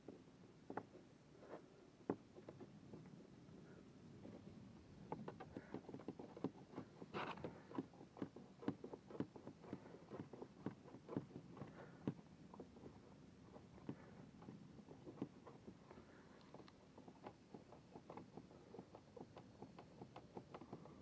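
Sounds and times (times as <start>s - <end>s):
rustling scrape: 6.2s - 10.5s.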